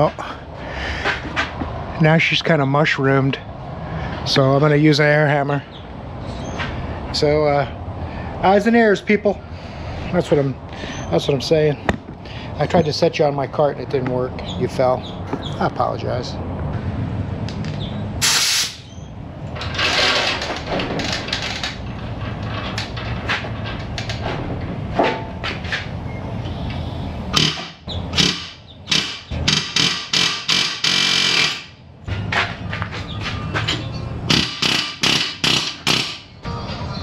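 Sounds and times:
pneumatic air hammer rattling: 0:18.2 - 0:24.3, 0:27.3 - 0:36.4.

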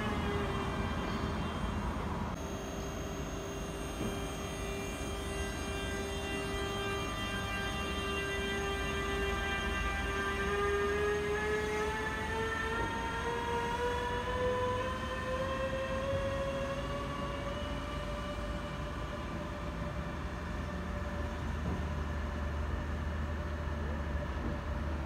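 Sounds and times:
electric locomotive whine: 0:00.0 - 0:25.0
train low rumble: 0:12.1 - 0:25.0.

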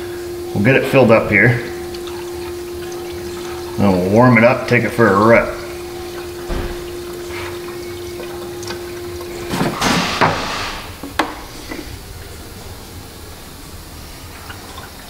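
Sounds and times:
liquid pouring from jug: 0:00.0 - 0:15.0
plastic jug handling noises: 0:05.8 - 0:11.9.

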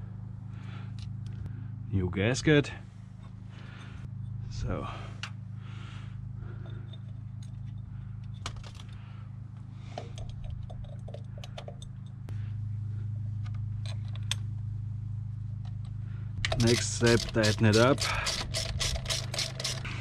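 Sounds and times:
steady low hum: 0:00.0 - 0:20.0
metal parts clicking: 0:16.4 - 0:19.9.

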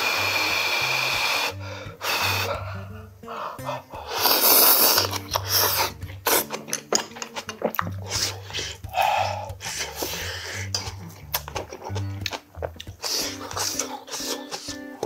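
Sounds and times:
person slurping food: 0:00.0 - 0:02.8, 0:03.6 - 0:15.0
wet chewing and lip smacks: 0:05.0 - 0:15.0.

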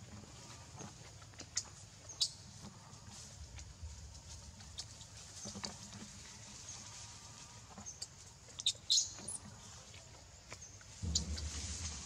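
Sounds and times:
baby monkey squeaking: 0:08.6 - 0:09.4.

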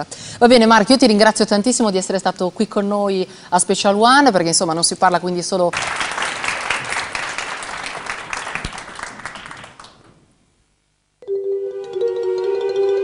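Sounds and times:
studio audience applauding: 0:05.7 - 0:10.1
instrumental song intro: 0:11.2 - 0:13.0.

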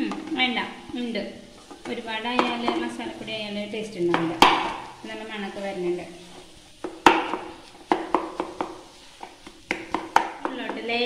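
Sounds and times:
wooden spatula stirring mash in a pan: 0:00.0 - 0:11.0
spatula knocking against a pan: 0:01.8 - 0:02.9, 0:04.1 - 0:04.9, 0:06.8 - 0:10.9.

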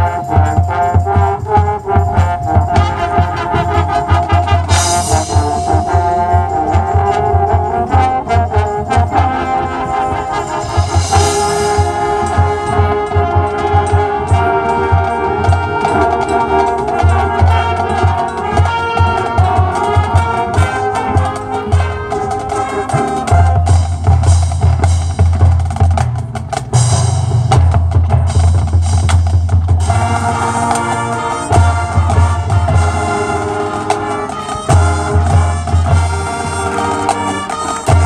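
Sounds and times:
brass ensemble melody: 0:00.0 - 0:26.0, 0:28.3 - 0:38.0
marching percussion drum beat: 0:00.0 - 0:38.0
cymbal crashes: 0:10.4 - 0:12.7.

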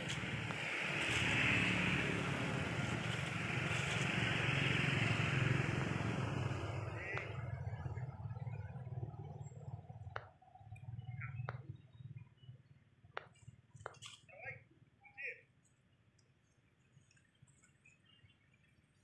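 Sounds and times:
motor vehicle passing: 0:00.0 - 0:12.5.

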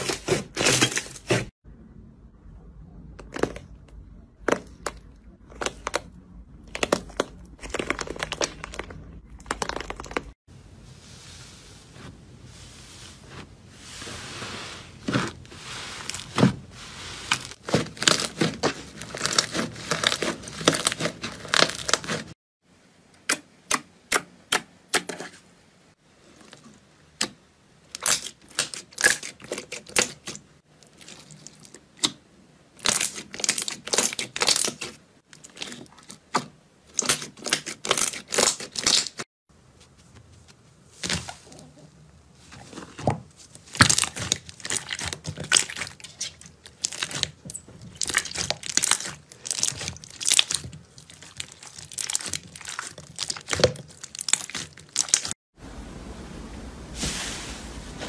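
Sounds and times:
slime squelching and popping: 0:03.2 - 0:10.4, 0:17.3 - 0:22.3, 0:32.8 - 0:39.2, 0:43.6 - 0:55.4.

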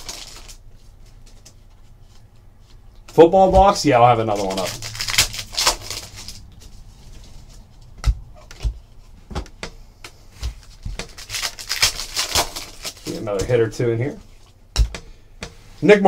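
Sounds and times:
foil wrappers crinkling and tearing: 0:00.0 - 0:00.6, 0:03.1 - 0:06.5, 0:10.6 - 0:13.8.

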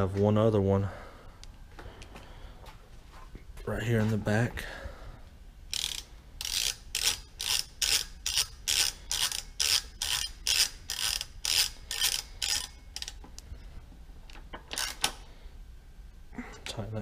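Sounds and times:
socket ratchet clicking: 0:05.7 - 0:13.2, 0:14.7 - 0:15.2.

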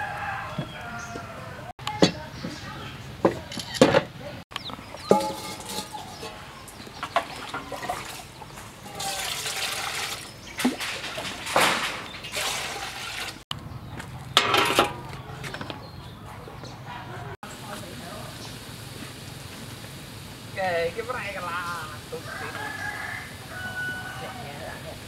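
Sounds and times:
water pouring and splashing: 0:04.8 - 0:13.4.

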